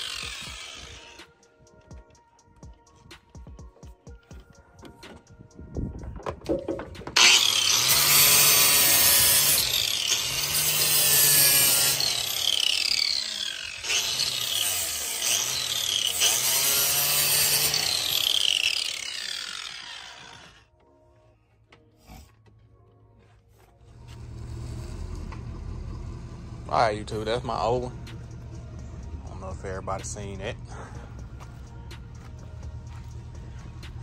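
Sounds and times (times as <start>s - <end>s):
angle grinder sanding wood: 0.0s - 1.3s, 7.2s - 20.6s
knocks on wooden box: 6.1s - 7.2s.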